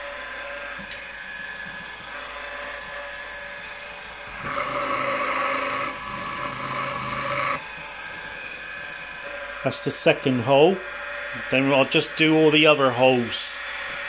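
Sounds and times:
milling machine spindle running: 0.0s - 14.0s
drill bit cutting metal: 2.0s - 7.8s, 9.7s - 14.0s.

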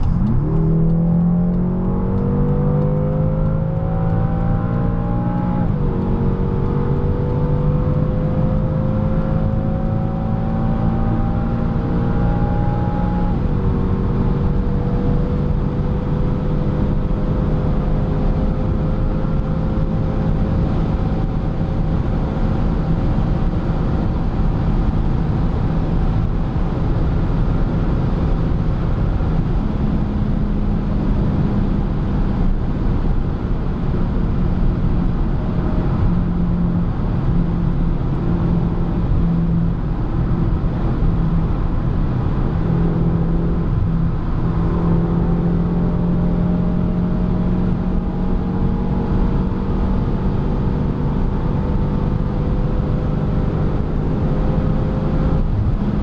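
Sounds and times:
car engine running: 0.0s - 17.1s
road noise: 0.0s - 56.0s.

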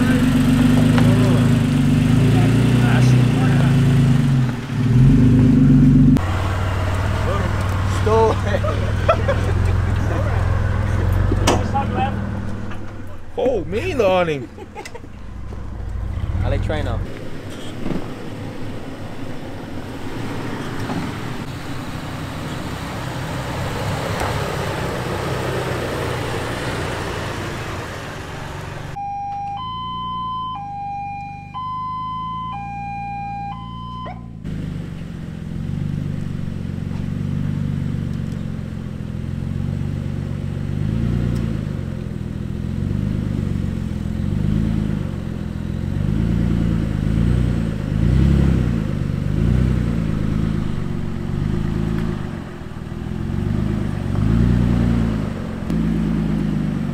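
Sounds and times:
truck engines running: 0.0s - 56.9s
two-tone siren: 29.0s - 34.4s.

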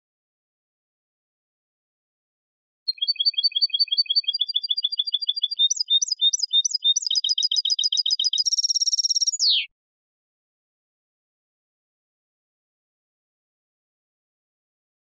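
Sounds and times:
goldfinch singing: 2.9s - 9.7s.

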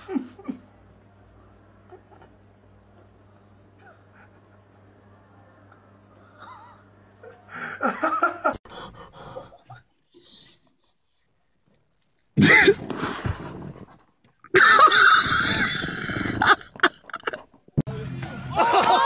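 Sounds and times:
people laughing and yelling: 17.9s - 19.0s.

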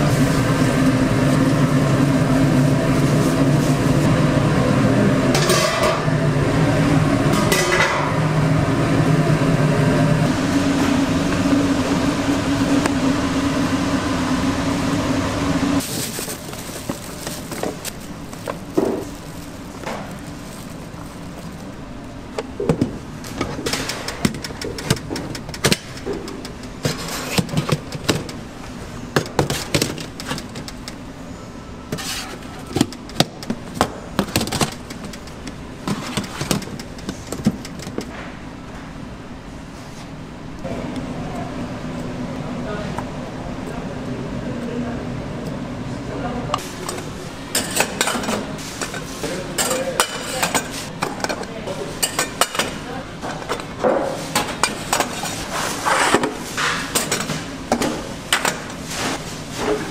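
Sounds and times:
loud machine hum: 0.0s - 59.9s
dishes and utensils clinking: 46.9s - 52.8s.

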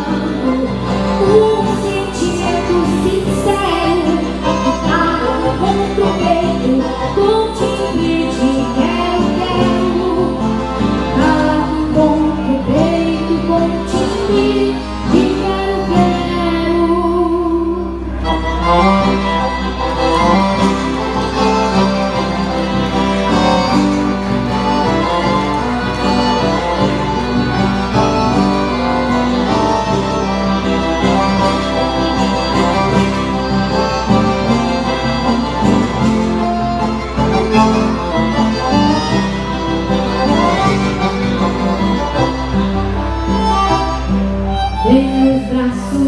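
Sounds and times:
piano accordion melody: 0.0s - 46.0s
strummed acoustic guitar: 18.1s - 44.8s.

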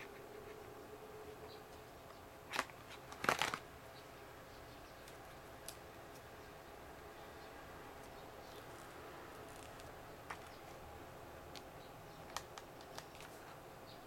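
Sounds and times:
plastic packaging rustling: 2.5s - 3.7s, 8.5s - 10.8s, 12.2s - 13.6s.

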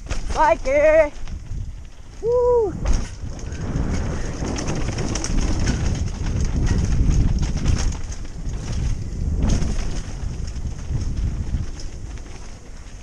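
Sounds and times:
bike rattling over bumps: 0.0s - 13.0s
tyres on dirt: 0.0s - 13.0s
wind buffeting microphone: 0.0s - 13.0s.

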